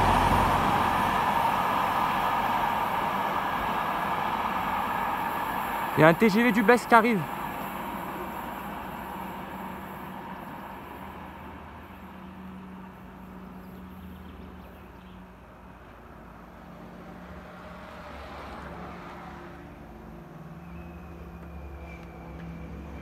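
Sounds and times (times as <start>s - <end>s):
engine humming: 0.0s - 16.8s
faint outdoor background: 0.0s - 23.0s.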